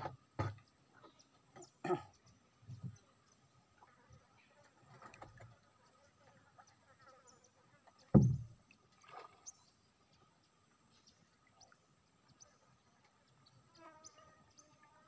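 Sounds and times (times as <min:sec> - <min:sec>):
soft knock: 0:08.1 - 0:08.5
dull thump: 0:08.1 - 0:08.6.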